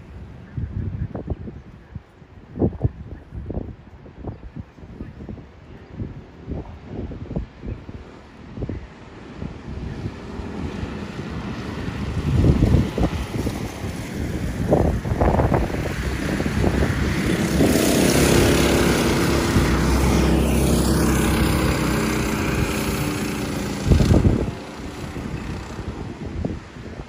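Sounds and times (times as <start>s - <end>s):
wind buffeting microphone: 0.0s - 27.0s
go-kart engine running: 15.4s - 26.4s.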